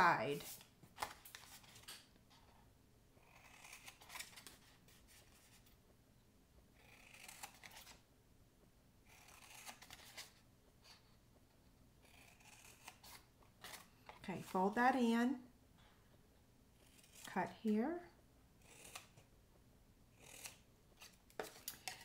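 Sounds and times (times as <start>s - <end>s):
scissors snipping cardstock: 6.8s - 8.0s.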